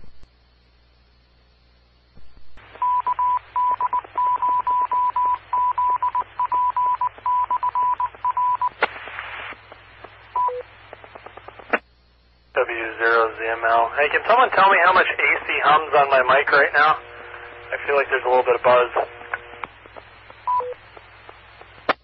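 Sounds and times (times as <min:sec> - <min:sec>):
radio hiss: 0:02.1 - 0:06.4, 0:08.0 - 0:22.0
morse code beeps: 0:02.8 - 0:08.8, 0:10.4 - 0:10.6, 0:20.4 - 0:20.8.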